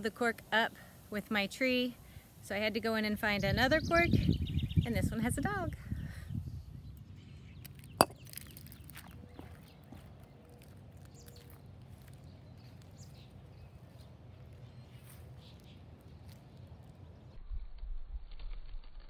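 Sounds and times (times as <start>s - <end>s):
glass bottle clinking on concrete: 8.0s - 8.5s.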